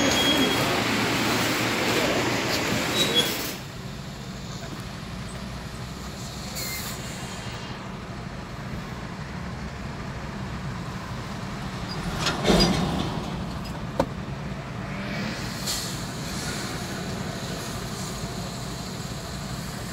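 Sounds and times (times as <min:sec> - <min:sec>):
car idling hum: 0:03.7 - 0:12.0.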